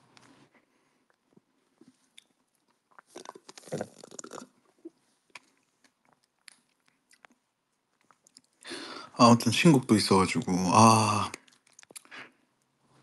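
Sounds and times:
crunching and chewing: 0:01.1 - 0:08.6, 0:11.3 - 0:12.7.

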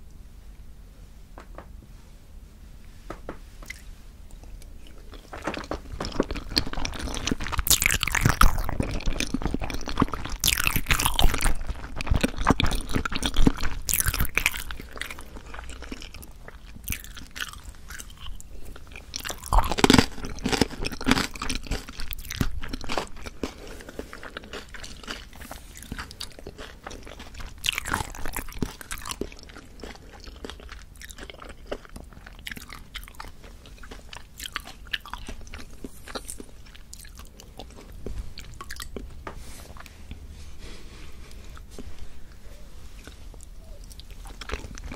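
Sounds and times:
sticky wet chewing: 0:03.7 - 0:39.1.

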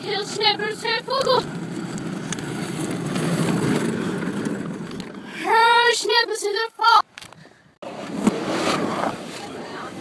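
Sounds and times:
wagon wheels rumbling over pavement: 0:00.0 - 0:06.9.

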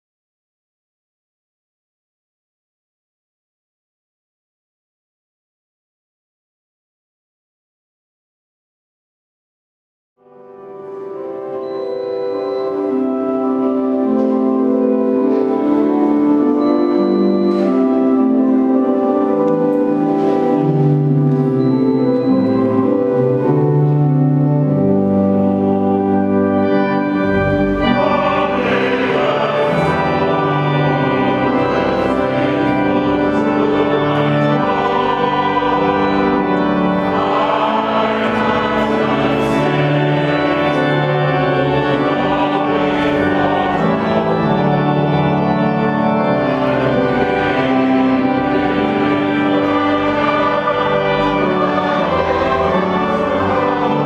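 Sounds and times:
electronic organ playing a hymn: 0:10.2 - 0:54.0
congregation singing: 0:11.1 - 0:54.0.

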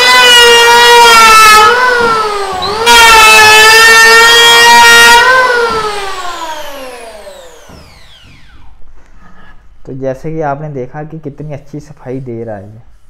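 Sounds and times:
planer blades cutting wood: 0:00.0 - 0:08.7
electric hand planer whining: 0:00.0 - 0:08.8.

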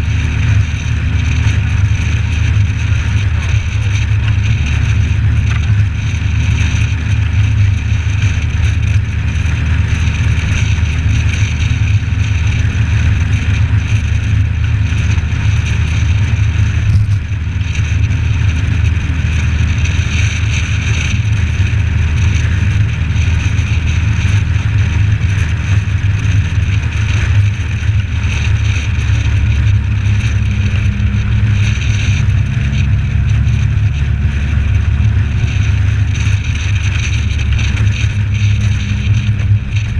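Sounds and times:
car engine and wind rumble: 0:00.0 - 0:39.9.

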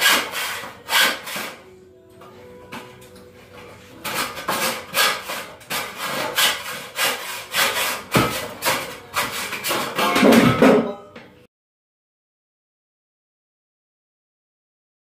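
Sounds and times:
hand saw cutting wood: 0:00.0 - 0:01.6, 0:04.0 - 0:10.2.

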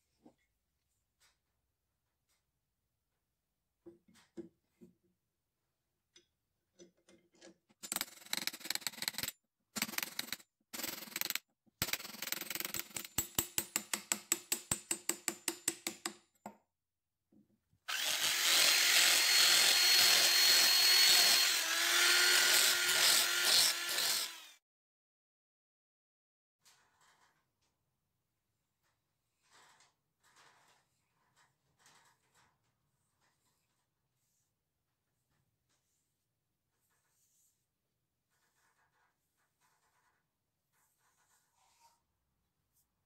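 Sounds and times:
hand tool scraping wood: 0:17.9 - 0:24.5
power tool grinding wood: 0:17.9 - 0:24.6.

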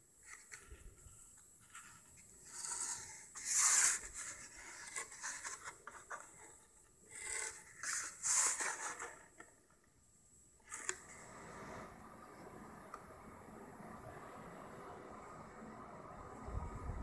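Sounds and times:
cardboard rubbing and scraping: 0:01.6 - 0:09.4.

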